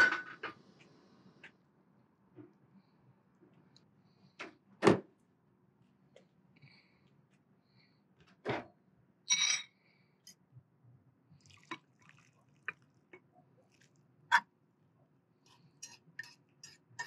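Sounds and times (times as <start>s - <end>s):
fork clinking and scraping on pot: 15.5s - 17.0s.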